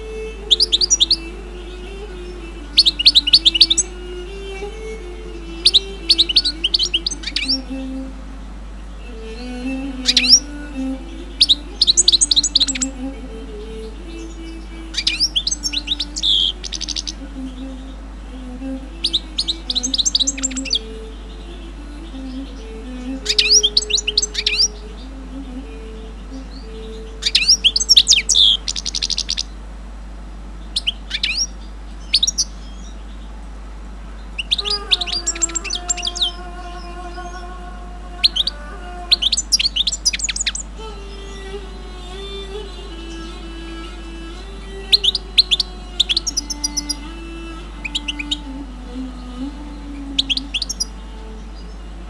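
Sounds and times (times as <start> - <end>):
songbird chirps and trills: 0.0 - 52.0.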